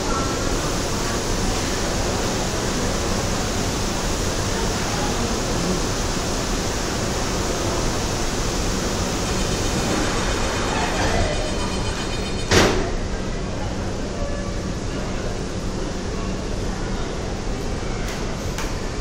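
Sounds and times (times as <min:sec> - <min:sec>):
air handling rushing noise: 0:00.0 - 0:12.0.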